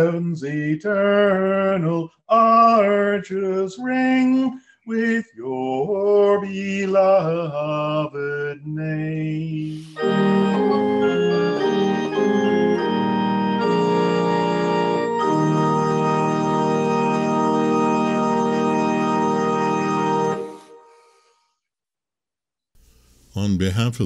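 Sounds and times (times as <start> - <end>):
organ playing chords: 9.7 - 21.0.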